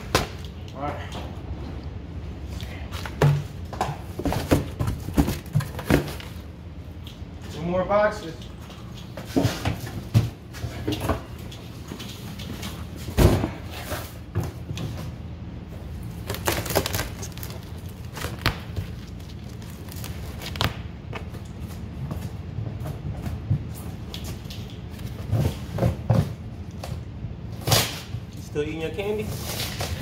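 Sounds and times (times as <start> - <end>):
knocks and rustles: 3.0 - 6.5.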